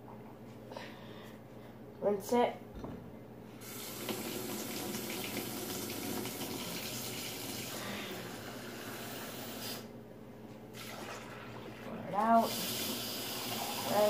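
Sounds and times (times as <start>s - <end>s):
tap water running and splashing: 3.6s - 9.8s, 10.7s - 14.0s.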